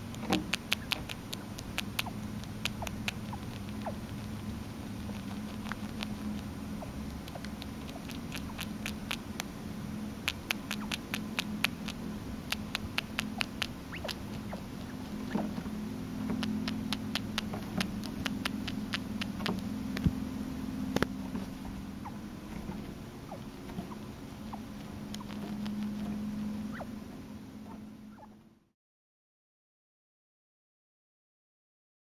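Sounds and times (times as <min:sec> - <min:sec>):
chinchilla squeaks and clicks: 0:00.1 - 0:09.5, 0:10.2 - 0:15.5, 0:16.3 - 0:19.7, 0:23.3 - 0:26.1, 0:26.7 - 0:26.9.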